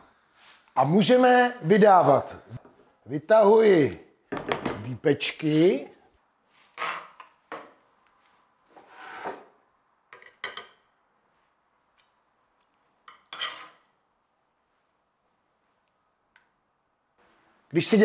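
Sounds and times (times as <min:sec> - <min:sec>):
metal ladle scraping dish: 0:08.8 - 0:09.4, 0:13.1 - 0:13.9.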